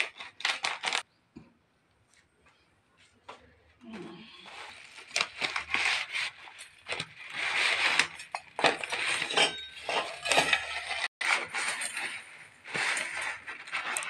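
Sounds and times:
plastic packet rustling: 0.0s - 1.1s, 4.5s - 14.0s.

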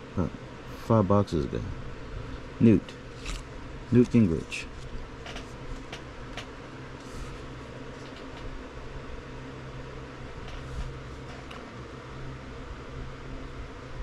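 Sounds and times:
fan humming: 0.0s - 14.0s
cards being handled: 3.1s - 8.5s.

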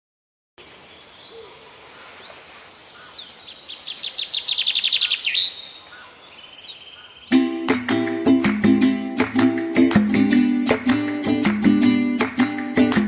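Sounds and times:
songbirds singing: 0.6s - 7.6s.

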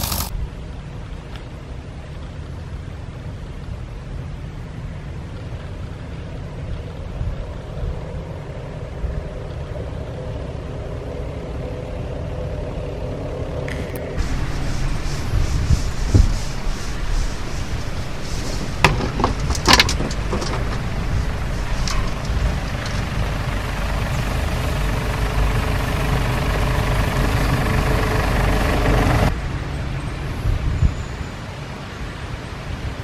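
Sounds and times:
off-road vehicle engine running: 0.0s - 0.3s, 1.8s - 29.4s
knocks and rattles from bumps: 18.0s - 23.4s.

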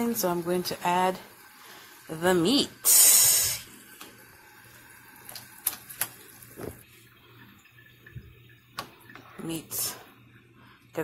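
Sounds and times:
water boiling in a pot: 0.0s - 11.0s
meat splashing into water: 5.2s - 6.8s.

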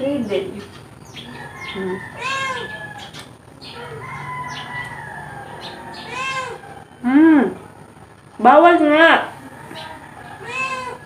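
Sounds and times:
cat meowing: 1.8s - 3.2s, 6.0s - 6.6s, 10.4s - 11.0s.

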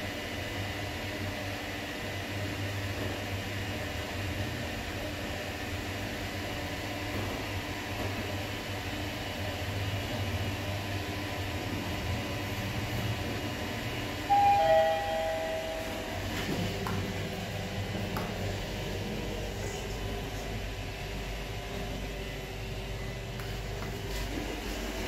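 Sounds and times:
elevator car humming: 0.6s - 25.0s
two-note arrival chime: 14.3s - 16.2s.

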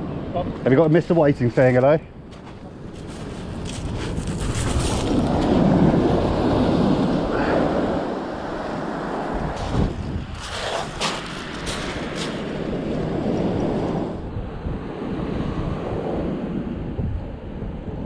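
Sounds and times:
wind buffeting microphone: 0.0s - 18.0s
surf breaking on shingle: 9.6s - 13.8s.

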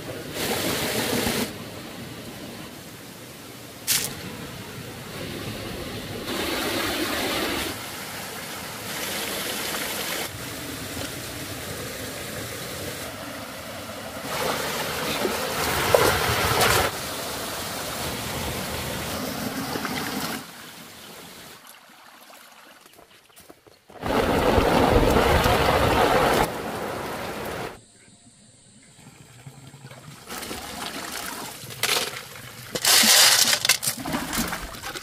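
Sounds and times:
stream trickling over rocks: 7.8s - 27.8s
water stirring and splashing: 13.0s - 20.5s, 29.9s - 35.0s.

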